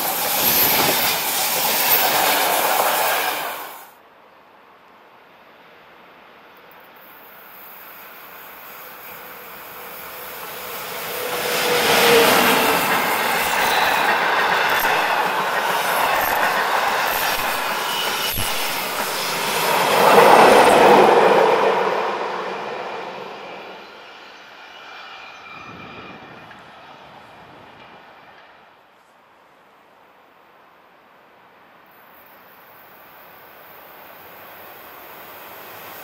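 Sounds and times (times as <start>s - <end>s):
train passing: 0.0s - 29.5s, 30.3s - 36.0s
wheel squeal: 11.2s - 19.7s.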